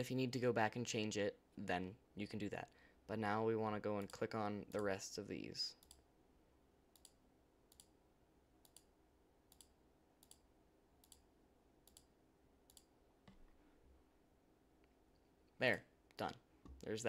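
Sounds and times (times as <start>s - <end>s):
computer mouse clicks: 5.8s - 6.0s, 6.9s - 8.0s, 8.6s - 8.9s, 9.5s - 12.1s, 12.7s - 13.5s.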